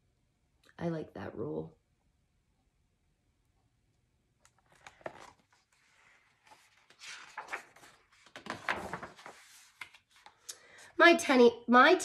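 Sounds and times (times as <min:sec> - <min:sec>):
book pages turning: 0:04.4 - 0:10.5.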